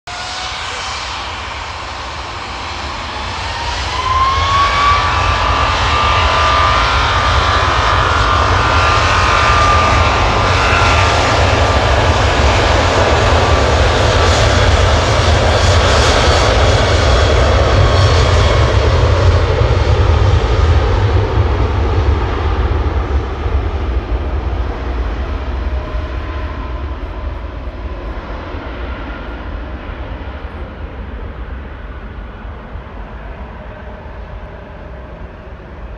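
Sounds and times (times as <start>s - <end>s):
jet takeoff roar: 0.0s - 35.9s
jet engines whining: 0.1s - 35.9s.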